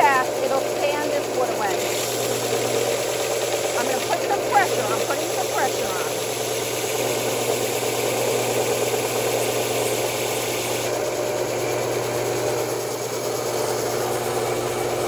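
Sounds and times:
sanding belt rasping wood: 0:00.0 - 0:11.0
sander motor hum: 0:00.0 - 0:15.0.

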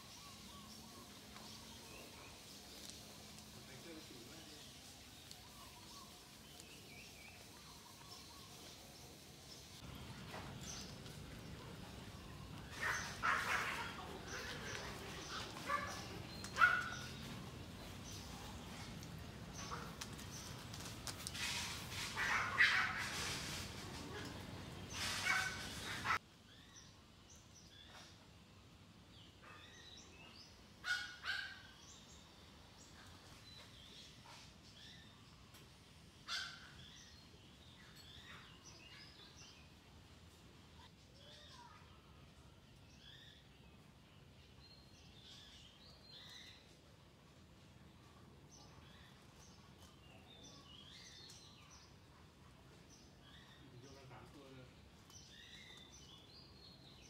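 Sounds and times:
birds chirping: 0:00.0 - 0:28.2.

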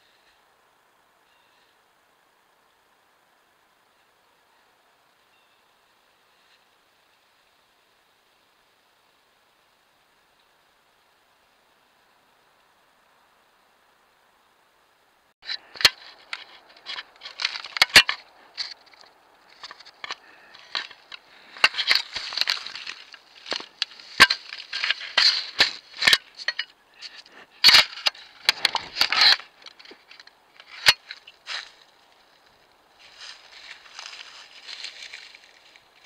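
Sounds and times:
fur scraping camera housing: 0:15.4 - 0:31.7.

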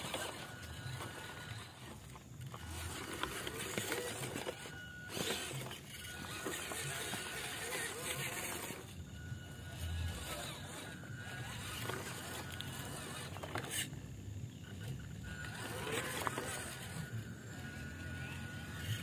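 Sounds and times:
toy truck motor whining: 0:00.0 - 0:19.0.

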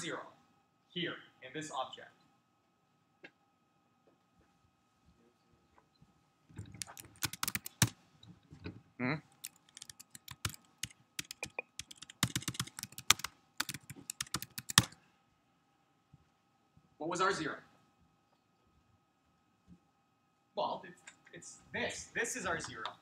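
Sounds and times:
keyboard typing: 0:06.6 - 0:08.0, 0:09.3 - 0:15.0.

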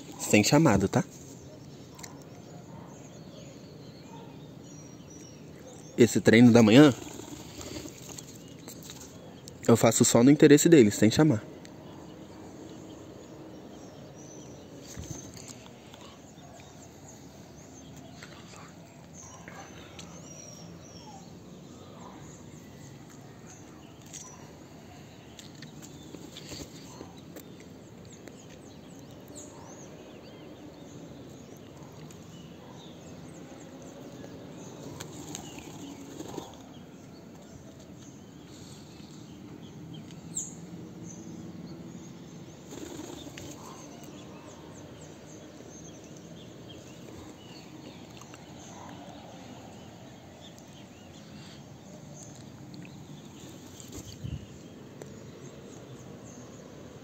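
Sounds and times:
faint birds chirping: 0:00.0 - 0:57.0
bird wings flapping: 0:06.9 - 0:09.1, 0:42.7 - 0:43.8.

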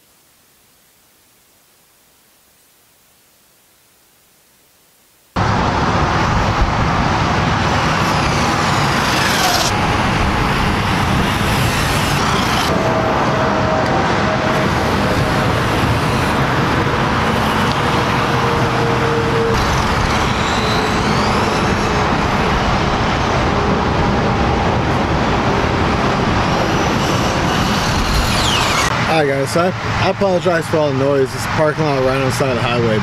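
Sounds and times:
faint rising and falling whines: 0:05.0 - 0:30.8
highway traffic: 0:05.4 - 0:33.0.

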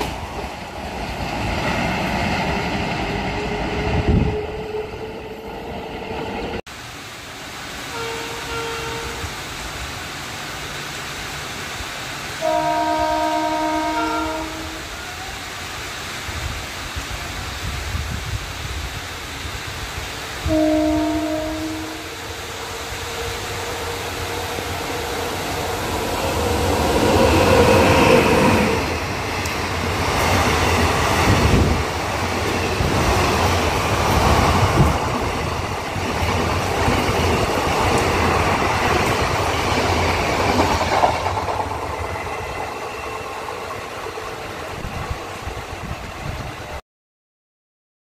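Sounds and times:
locomotive horn: 0:07.9 - 0:09.3, 0:12.4 - 0:15.3, 0:20.4 - 0:22.2.

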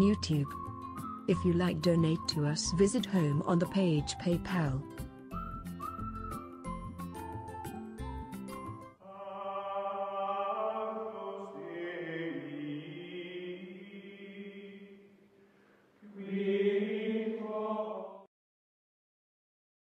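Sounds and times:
voices chanting long notes: 0:09.0 - 0:15.0.

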